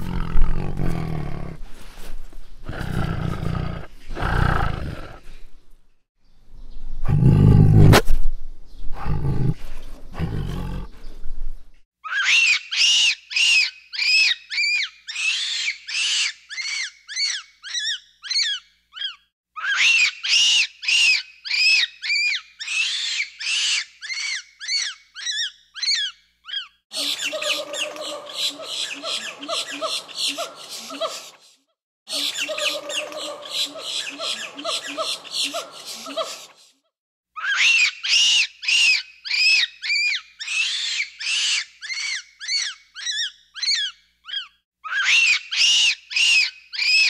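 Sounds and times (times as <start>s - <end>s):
tiger roaring: 0.0s - 1.6s, 2.7s - 5.3s, 7.0s - 8.0s, 9.0s - 11.0s
monkey calling: 12.0s - 31.2s, 37.4s - 47.0s.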